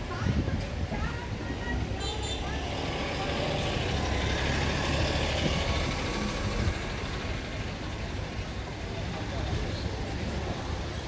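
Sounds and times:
street noise: 0.0s - 11.0s.

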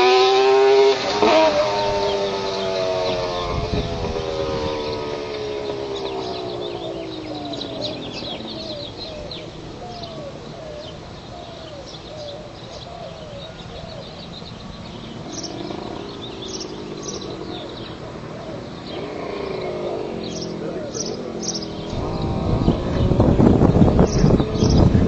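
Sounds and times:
birds chirping: 0.0s - 25.0s
distant motorcycle engine: 0.0s - 25.0s.

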